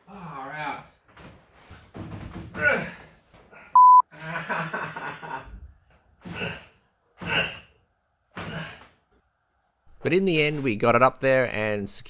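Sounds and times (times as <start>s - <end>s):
man straining and sighing: 2.5s - 3.8s
censor bleep: 3.8s - 4.0s.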